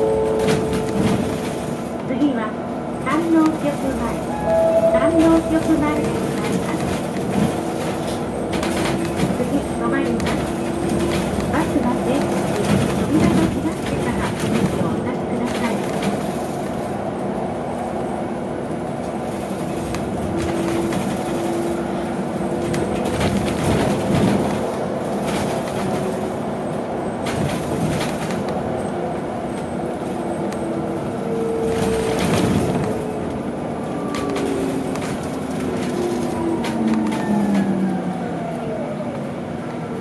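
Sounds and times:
bus road noise: 0.0s - 40.0s
knocks and rattles: 22.6s - 26.3s.

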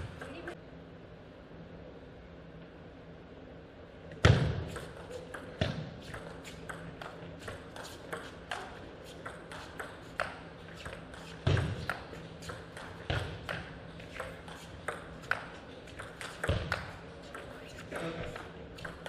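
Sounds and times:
table tennis ball clicking: 4.7s - 11.0s.

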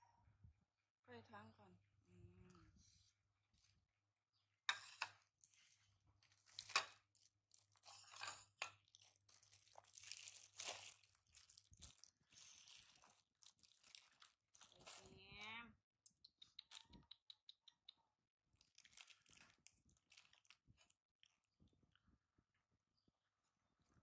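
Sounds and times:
plastic bag crinkling: 6.2s - 15.5s, 18.6s - 21.0s.

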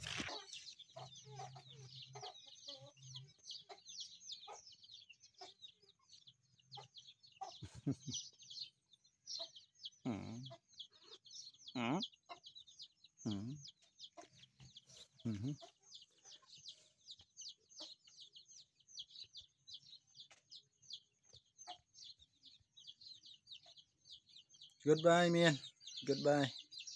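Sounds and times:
chickens clucking: 0.0s - 26.9s.

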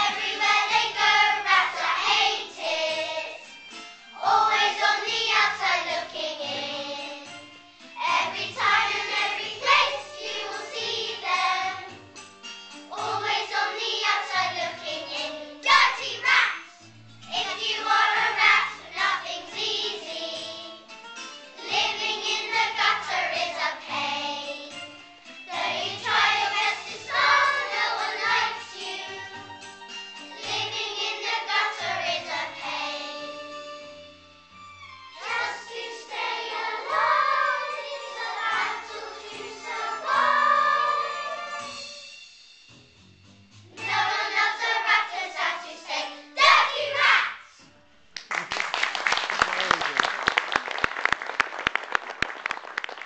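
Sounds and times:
children singing together: 0.0s - 3.5s, 4.2s - 7.4s, 8.0s - 12.0s, 12.9s - 16.6s, 17.3s - 20.8s, 21.6s - 24.9s, 25.5s - 29.4s, 30.4s - 33.5s, 35.2s - 41.8s, 43.8s - 47.4s
instrumental accompaniment with bass: 0.1s - 46.6s.

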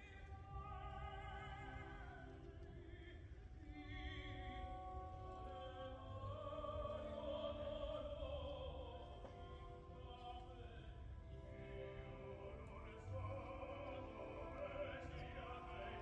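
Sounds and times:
operatic singing with vibrato: 0.0s - 16.0s.

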